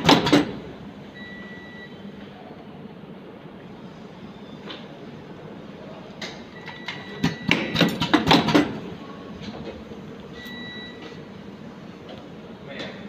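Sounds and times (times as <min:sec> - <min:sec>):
machine clicks and clacks: 0:00.0 - 0:00.6, 0:06.7 - 0:08.8.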